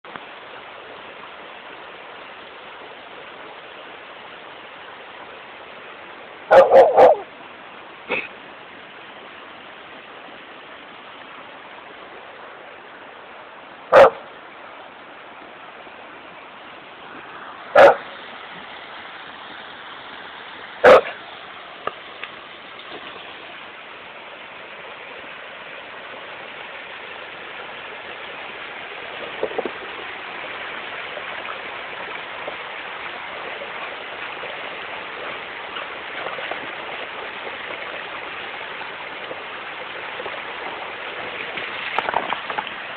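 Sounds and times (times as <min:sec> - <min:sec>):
river rushing over stones: 0:00.1 - 0:42.9
dog barking: 0:06.5 - 0:07.3, 0:13.9 - 0:14.2, 0:17.8 - 0:18.0, 0:20.8 - 0:21.2.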